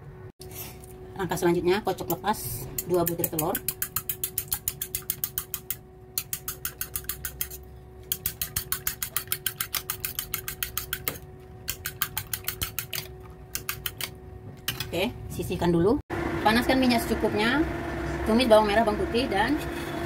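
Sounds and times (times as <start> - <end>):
fork beating eggs in metal bowl: 2.8 - 14.2.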